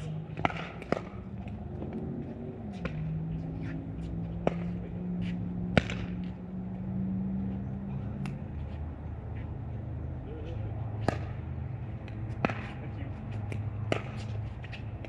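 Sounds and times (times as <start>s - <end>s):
low engine-like drone: 0.0s - 15.0s
paddles hitting plastic ball: 0.3s - 1.9s.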